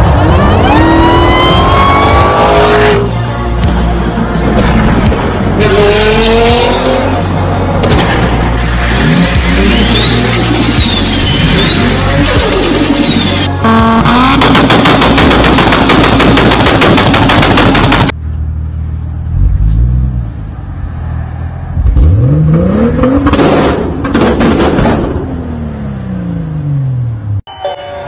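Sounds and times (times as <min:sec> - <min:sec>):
car engine revving: 0:05.0 - 0:08.0, 0:08.7 - 0:15.4, 0:19.3 - 0:27.3
rapid exhaust bangs: 0:12.7 - 0:18.1, 0:22.9 - 0:25.5.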